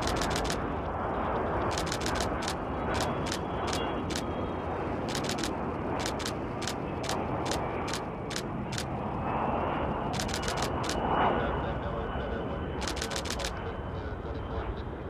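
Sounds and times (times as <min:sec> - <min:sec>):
camera shutter clicks: 0:00.0 - 0:00.6, 0:01.7 - 0:04.3, 0:05.1 - 0:08.9, 0:10.2 - 0:11.0, 0:12.8 - 0:13.6
jet engines rushing: 0:00.0 - 0:15.0.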